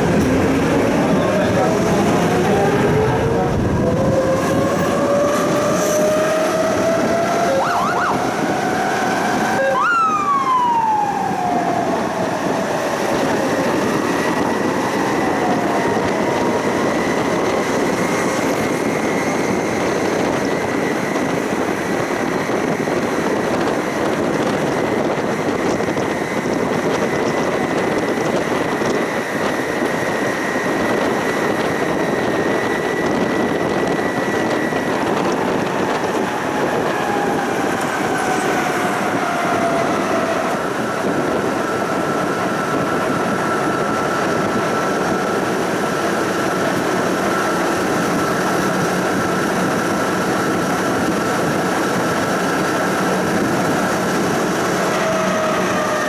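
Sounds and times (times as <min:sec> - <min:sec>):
tram rolling on rails: 0:00.0 - 0:56.0
tram traction drive whining: 0:00.0 - 0:56.0.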